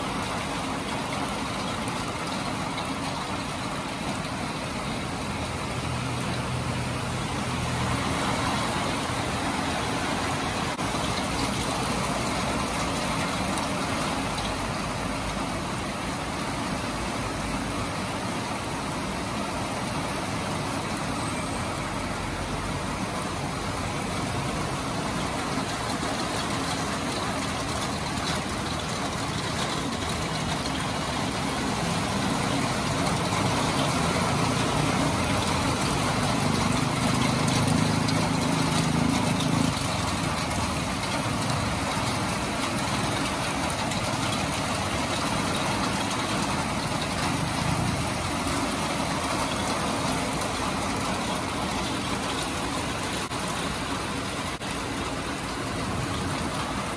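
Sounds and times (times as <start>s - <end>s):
heavy rain on wet street: 0.0s - 56.9s
passing road traffic: 0.0s - 56.9s
vehicle engine: 17.6s - 56.9s.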